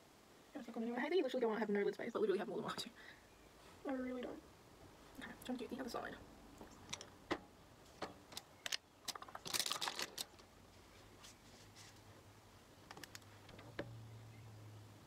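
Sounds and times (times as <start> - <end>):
faint low hum: 0.0 - 15.0
makeup items clicking and clattering: 8.3 - 10.4.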